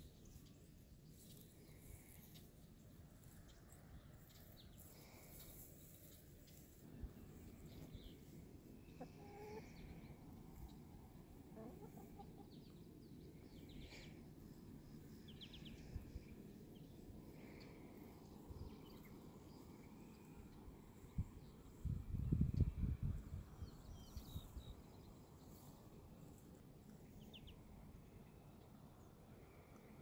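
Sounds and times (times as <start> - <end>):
chickens clucking faintly: 4.3 - 21.4.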